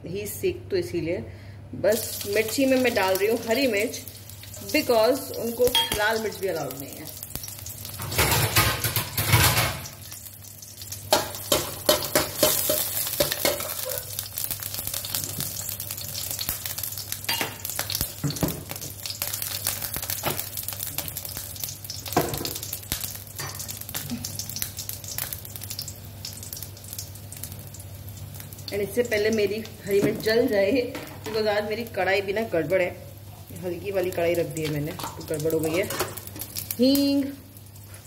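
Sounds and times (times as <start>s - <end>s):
chillies sizzling in oil: 1.9s - 38.0s.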